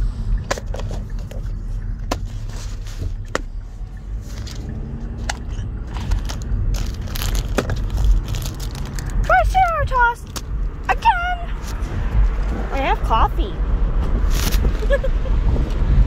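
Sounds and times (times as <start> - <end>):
low rumble inside car: 0.0 - 16.0
sharp clicks and crackles handling: 4.3 - 9.3.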